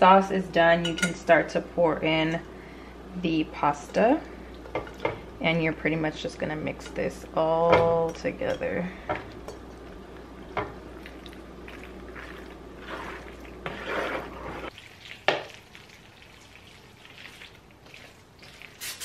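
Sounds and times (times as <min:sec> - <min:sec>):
mixing in glass bowl: 0:10.6 - 0:18.8
spoon stirring thick sauce in pot: 0:11.7 - 0:18.8.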